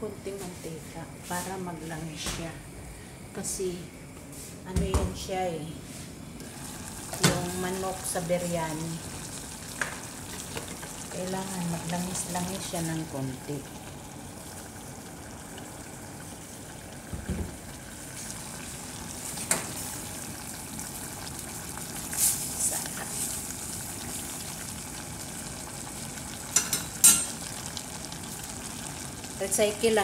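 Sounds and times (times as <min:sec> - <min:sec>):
chicken frying sizzle: 0:06.4 - 0:30.0.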